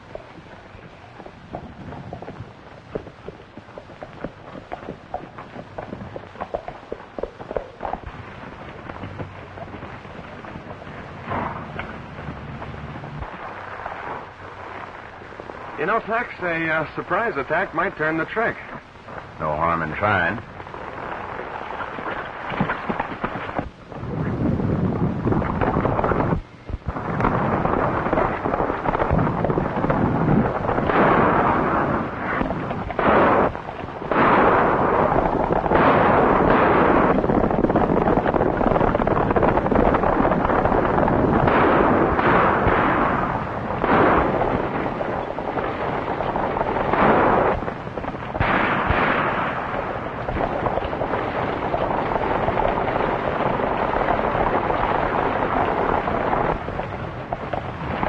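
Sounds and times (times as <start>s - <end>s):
continuous rushing din: 0.0s - 58.0s
gunshots: 9.8s - 14.3s, 25.6s - 56.8s.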